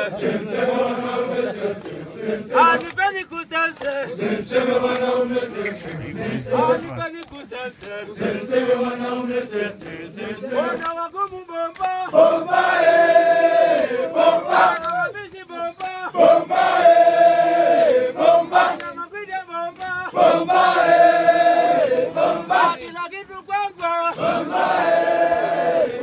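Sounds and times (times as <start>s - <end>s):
hand clapping: 0.0s - 13.0s, 13.6s - 16.2s, 17.7s - 26.0s
crowd singing a chanted song: 0.0s - 26.0s.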